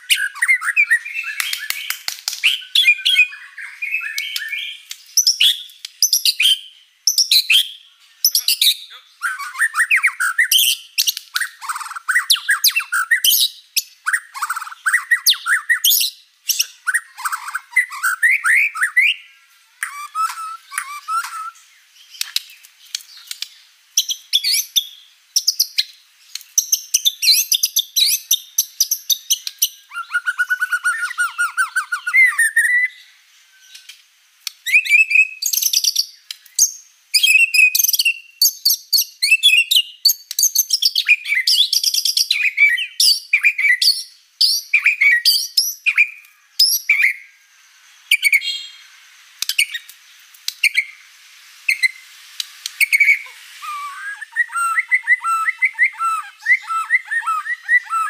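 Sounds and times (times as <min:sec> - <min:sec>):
bird singing whistled phrases: 0:00.0 - 0:21.9, 0:26.6 - 0:33.9, 0:34.6 - 0:47.4, 0:48.0 - 0:48.9, 0:50.6 - 0:51.0, 0:52.7 - 0:58.0.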